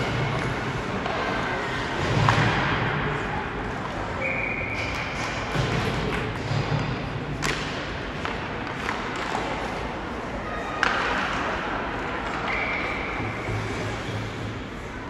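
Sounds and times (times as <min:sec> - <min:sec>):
referee's whistle: 0:04.2 - 0:04.9.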